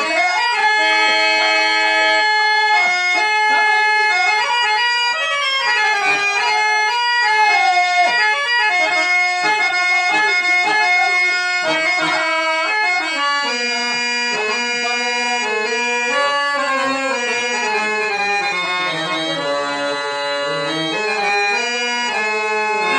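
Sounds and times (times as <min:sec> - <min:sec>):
harmonium melody: 0:00.0 - 0:22.9.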